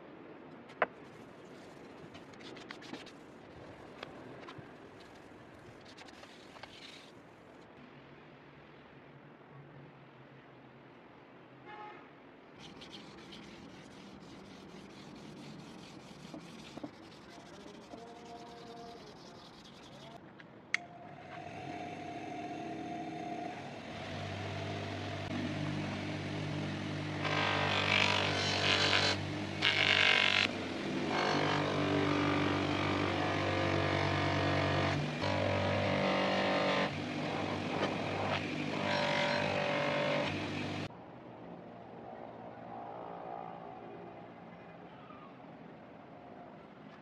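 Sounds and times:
polishing motor humming: 0:21.0 - 0:40.9.

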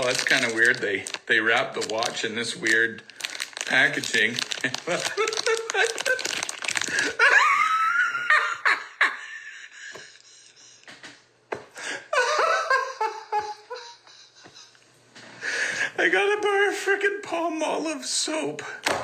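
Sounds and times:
man laughing hard: 0:04.7 - 0:10.1, 0:11.8 - 0:14.8.

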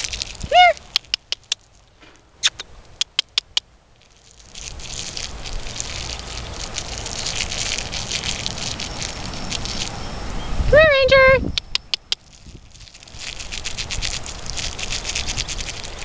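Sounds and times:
tongue clicks: 0:00.0 - 0:01.8, 0:02.4 - 0:03.7, 0:11.5 - 0:15.9
rushing crackling noise: 0:00.0 - 0:10.8, 0:11.5 - 0:16.0.

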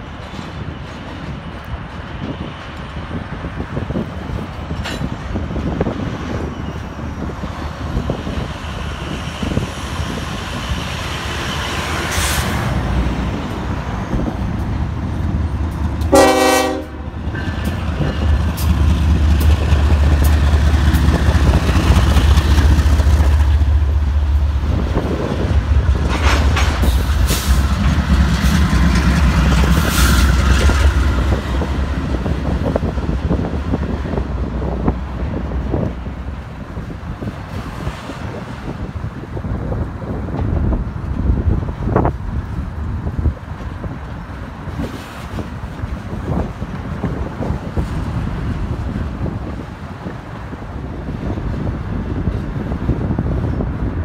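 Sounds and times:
diesel locomotive engine rumble: 0:00.0 - 0:54.0
rolling freight cars: 0:00.0 - 0:54.0
train air horn blast: 0:16.1 - 0:17.2.

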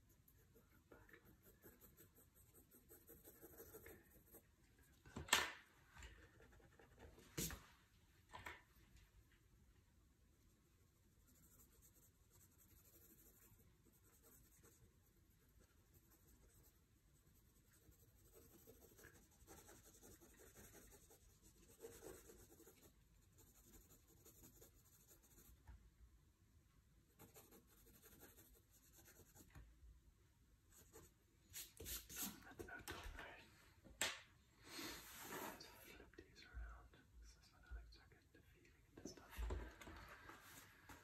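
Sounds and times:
pencil scratching on paper: 0:00.0 - 0:04.4, 0:06.2 - 0:07.6, 0:10.9 - 0:25.6, 0:27.2 - 0:29.6.

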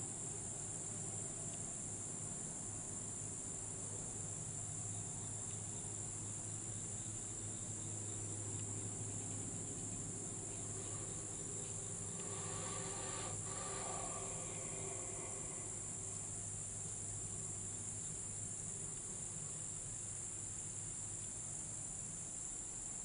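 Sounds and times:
insects droning: 0:00.0 - 0:23.0
low steady hum: 0:00.0 - 0:23.0.

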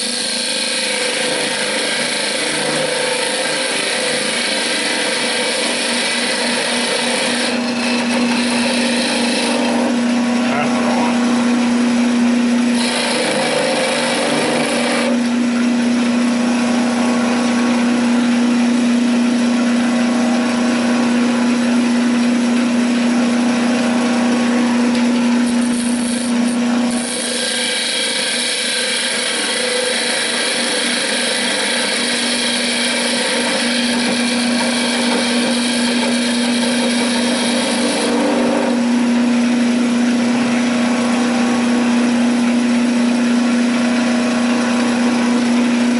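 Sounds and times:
turning tool cutting wood hiss: 0:00.0 - 0:10.0, 0:12.7 - 0:15.3, 0:25.4 - 0:38.8
wood lathe humming: 0:00.0 - 0:45.9.

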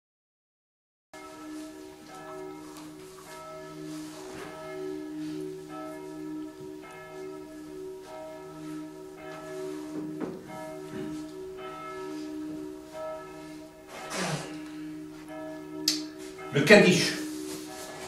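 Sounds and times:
bells ringing: 0:01.2 - 0:18.0.

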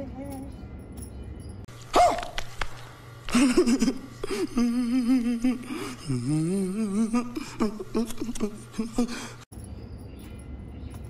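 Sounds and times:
man gasping: 0:04.2 - 0:08.0, 0:08.7 - 0:09.4
man wailing: 0:04.3 - 0:09.4.

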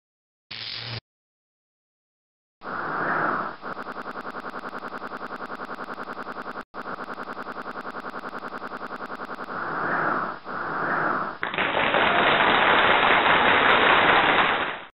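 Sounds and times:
rapid even ticking: 0:03.7 - 0:09.6.

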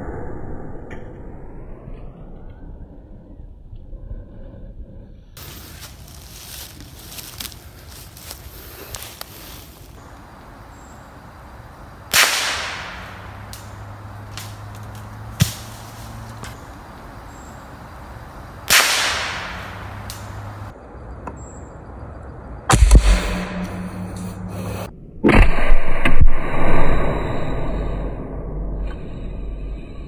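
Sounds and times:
rifle shots echoing: 0:12.1 - 0:13.8, 0:18.7 - 0:20.6.

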